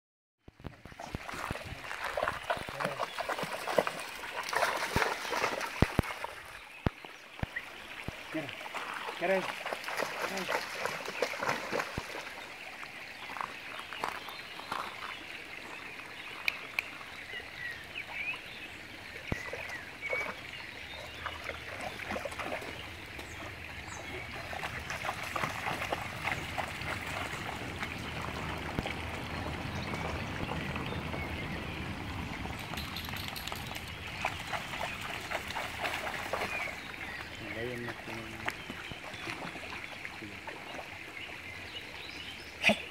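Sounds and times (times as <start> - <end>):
creek trickling over stones: 0.4 - 42.9
dog splashing in water: 0.9 - 6.5, 8.6 - 12.4, 24.1 - 31.4, 32.4 - 36.9.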